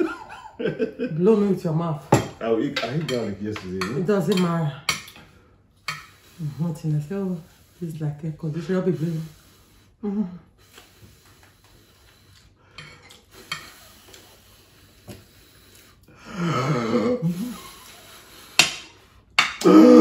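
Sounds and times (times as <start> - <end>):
cutlery clinking on plates: 12.8 - 13.8.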